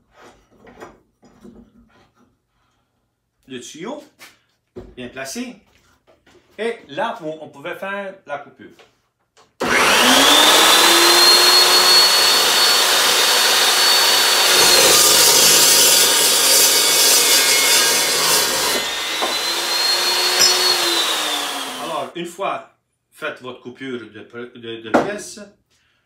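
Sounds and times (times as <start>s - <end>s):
chop saw motor whine: 9.6s - 22.1s
saw blade cutting metal pipe: 9.6s - 22.1s.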